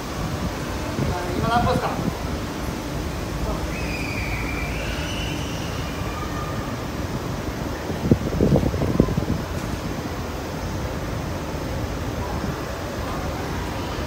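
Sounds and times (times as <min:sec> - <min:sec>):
faint high whine: 0:02.0 - 0:09.4.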